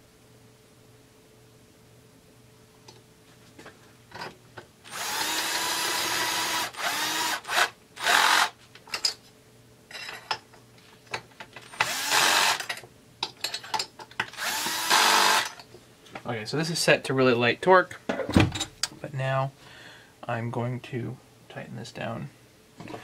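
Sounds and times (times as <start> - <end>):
power drill motor bursts: 4.9 - 8.6, 11.7 - 12.7, 14.3 - 15.6.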